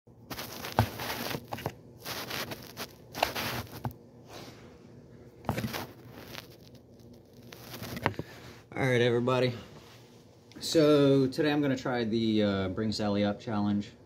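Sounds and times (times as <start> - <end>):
phone rubbing and scraping: 0.3 - 4.0, 5.4 - 8.3.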